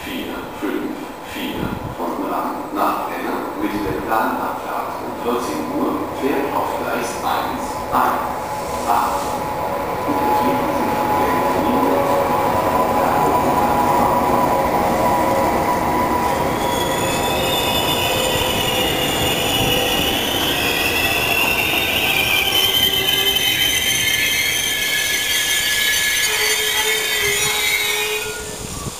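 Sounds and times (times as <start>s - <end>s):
train coaches rolling past: 0.0s - 28.9s
high squealing tones: 12.5s - 28.9s.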